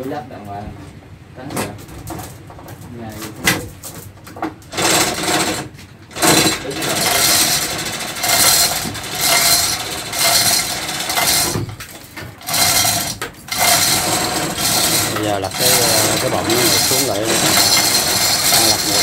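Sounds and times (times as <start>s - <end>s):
hoist chain rattling: 4.7s - 19.0s.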